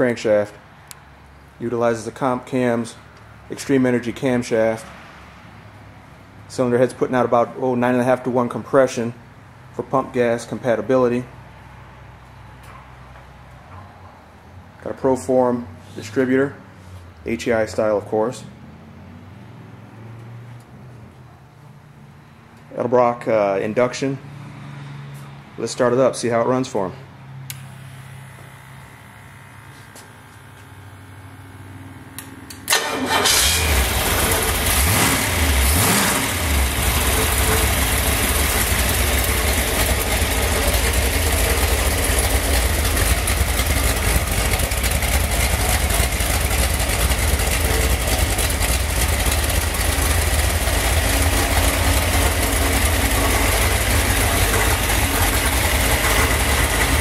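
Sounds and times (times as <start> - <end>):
engine starting and running: 27.4 - 57.0.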